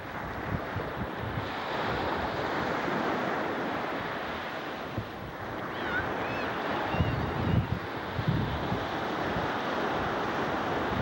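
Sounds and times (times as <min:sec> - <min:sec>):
gentle surf washing onto beach: 0:00.0 - 0:11.0
wind buffeting microphone: 0:04.8 - 0:11.0.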